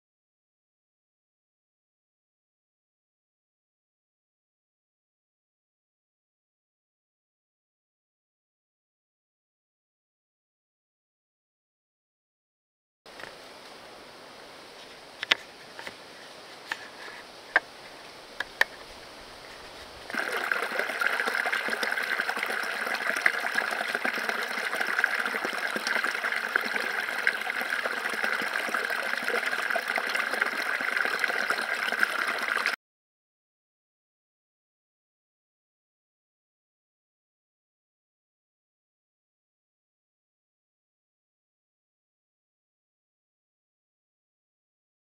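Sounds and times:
water trickling over rocks: 16.7s - 32.8s.

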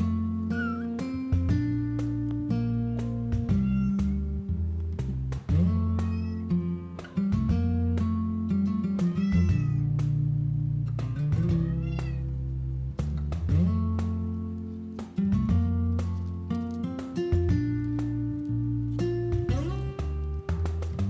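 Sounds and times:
plucked acoustic guitar music: 0.0s - 21.0s
kitten mewing: 0.5s - 1.1s, 3.5s - 4.2s, 6.0s - 6.5s, 8.9s - 9.9s, 11.5s - 12.3s.

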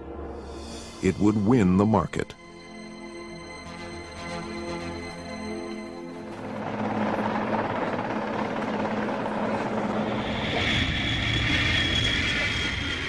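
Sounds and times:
jet aircraft flying overhead: 2.4s - 13.0s
helicopter rotor noise: 3.5s - 13.0s.

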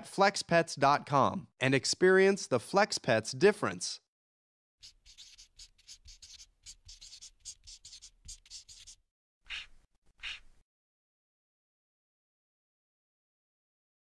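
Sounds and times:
marker pen scratching: 4.8s - 10.6s.

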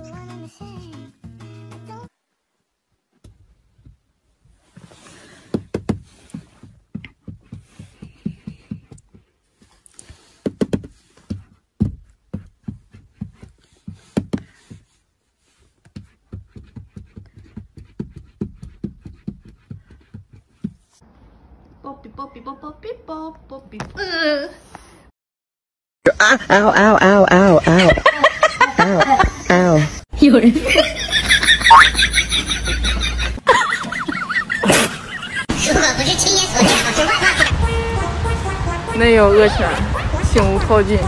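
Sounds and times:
cat paws tapping on windshield: 5.5s - 15.0s, 15.7s - 21.0s.

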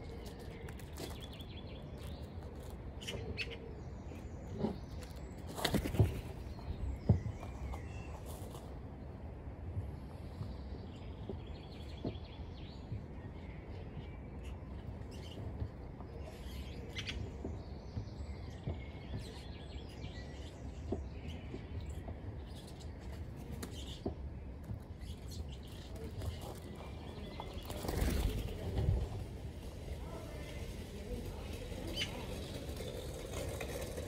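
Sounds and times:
small birds chirping: 0.0s - 34.0s.

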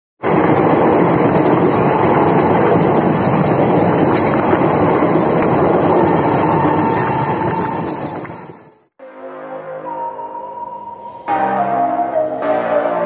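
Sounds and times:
train wheel and track noise: 0.2s - 8.9s.

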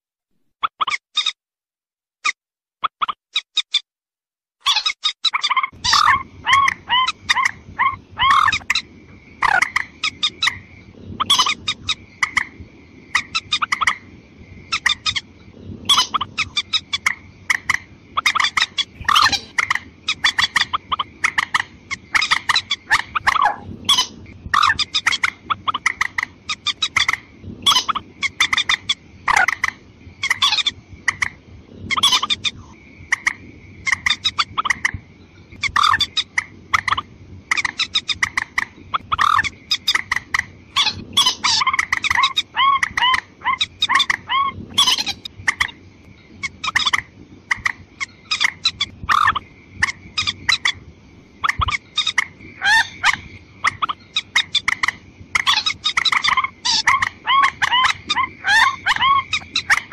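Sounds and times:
rail clucking and croaking calls: 0.6s - 1.4s, 4.6s - 59.9s.

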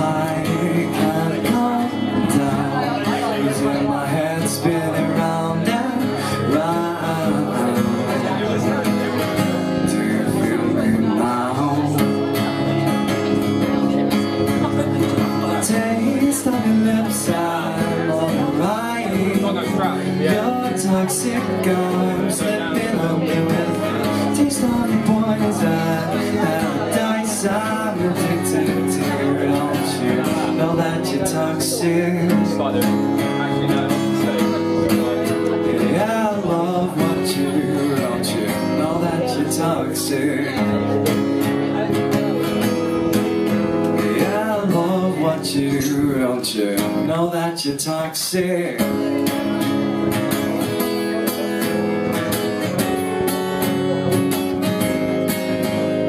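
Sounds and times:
acoustic guitar strumming: 0.0s - 56.0s
man singing: 0.0s - 56.0s.

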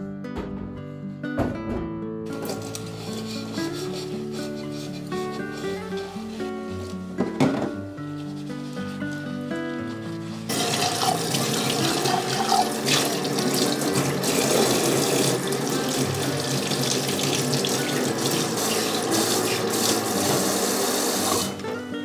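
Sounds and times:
tap water splashing in sink: 10.5s - 21.6s.

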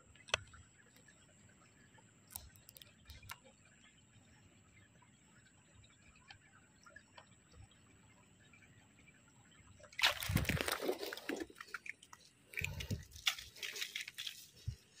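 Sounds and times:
faint water drips: 0.0s - 15.0s
water sloshing and splashing: 9.4s - 15.0s.

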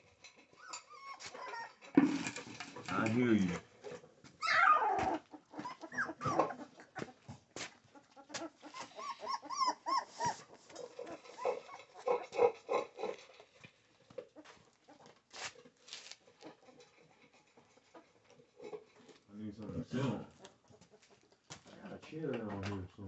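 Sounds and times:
puppies squealing and whining: 0.5s - 2.0s, 4.4s - 7.2s, 8.4s - 12.6s
knocks and rustling in box: 2.0s - 3.2s.

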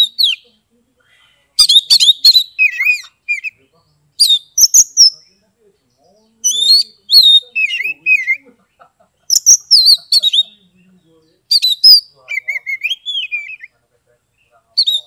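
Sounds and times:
bird singing whistled notes: 0.0s - 0.5s, 1.6s - 3.6s, 4.2s - 5.4s, 6.0s - 8.4s, 9.3s - 13.8s, 14.8s - 15.0s.

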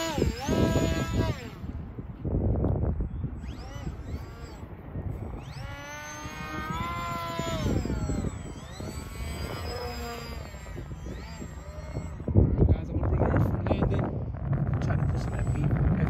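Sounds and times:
electric motor and propeller whining: 0.0s - 16.0s.

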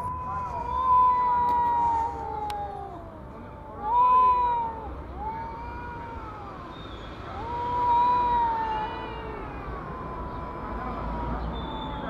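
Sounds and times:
cats yowling: 0.0s - 12.0s.

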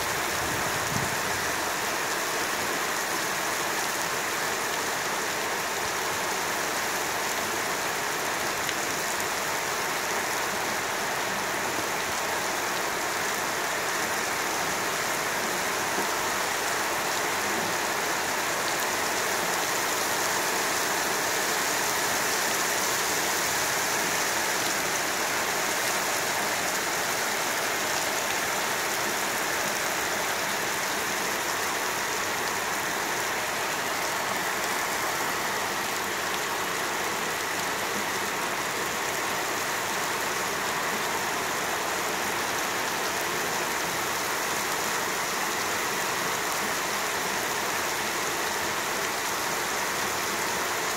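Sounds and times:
rain falling on paving: 0.0s - 50.9s.

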